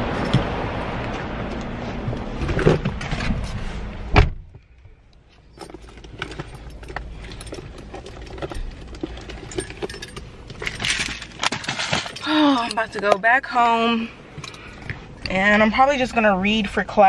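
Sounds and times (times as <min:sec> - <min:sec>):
car door shutting: 0:02.4 - 0:04.6
keys jangling: 0:05.5 - 0:13.1
clicks and small rattles: 0:05.5 - 0:13.3.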